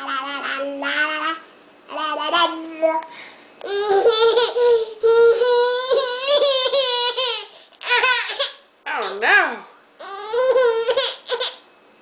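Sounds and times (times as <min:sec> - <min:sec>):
baby crying: 0:10.0 - 0:11.6.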